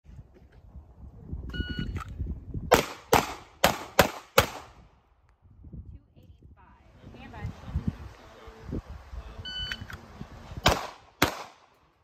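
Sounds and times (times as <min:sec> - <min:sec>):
pistol shots: 0:02.7 - 0:04.8, 0:10.6 - 0:11.8.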